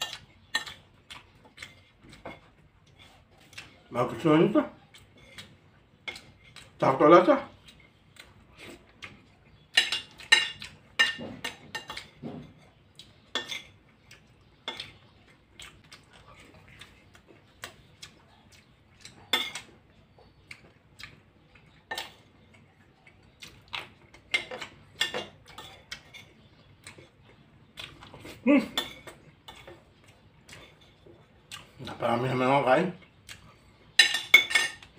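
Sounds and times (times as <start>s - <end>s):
chewing and lip-smacking: 0.0s - 3.9s, 4.8s - 6.8s, 7.5s - 32.0s, 33.0s - 34.0s
spoon clinking on glass dish: 9.7s - 12.6s, 34.0s - 34.9s.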